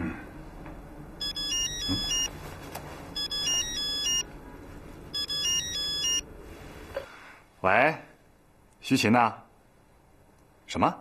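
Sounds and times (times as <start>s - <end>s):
mobile phone ringtone: 1.2s - 2.3s, 3.2s - 4.3s, 5.2s - 6.2s.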